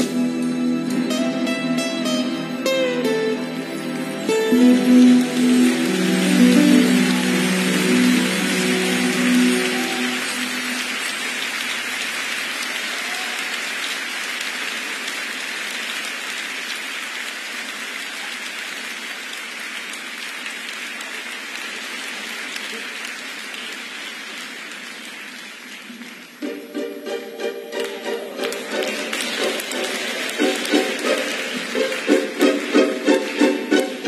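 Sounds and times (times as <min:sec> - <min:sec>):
plucked string instruments: 0:00.0 - 0:11.3, 0:26.4 - 0:34.0
audience applauding: 0:02.0 - 0:34.0.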